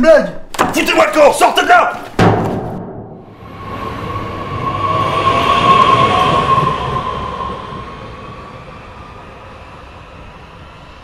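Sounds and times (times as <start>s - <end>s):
train passing with rushing rumble: 3.2s - 11.0s
train high whine: 3.3s - 11.0s.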